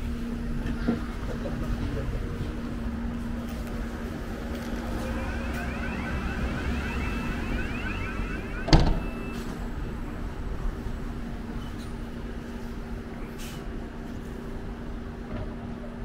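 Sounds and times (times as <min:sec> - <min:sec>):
door warning chirps: 0:04.6 - 0:09.8
bus doors shutting with thud: 0:08.7 - 0:09.6.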